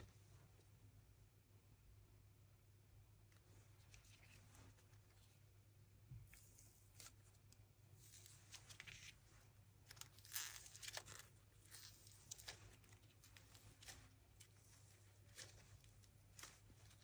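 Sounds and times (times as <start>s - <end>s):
paper crinkling and crackling: 3.4s - 5.4s, 6.2s - 17.0s.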